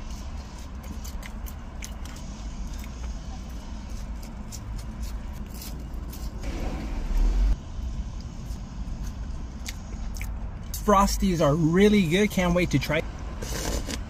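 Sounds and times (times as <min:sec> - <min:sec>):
loud rumble with hiss: 0:06.4 - 0:10.0.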